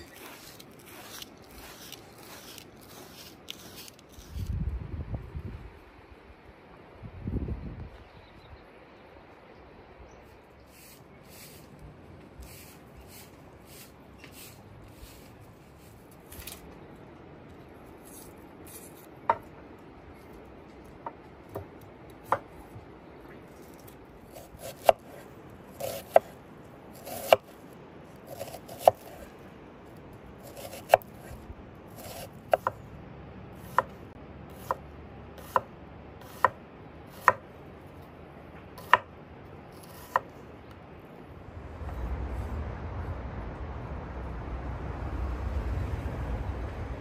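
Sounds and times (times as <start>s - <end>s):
knife slicing strokes: 0.0s - 4.6s, 12.4s - 16.6s, 18.0s - 19.1s, 23.5s - 27.6s, 28.3s - 29.4s, 30.4s - 32.8s
knife chopping on wooden board: 37.2s - 37.4s, 38.8s - 39.1s
low rumble: 41.0s - 47.0s.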